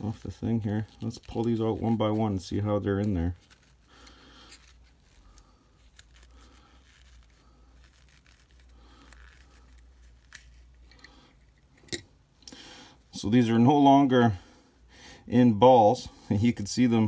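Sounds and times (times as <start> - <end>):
fibrous tearing and scraping: 0.0 - 10.7.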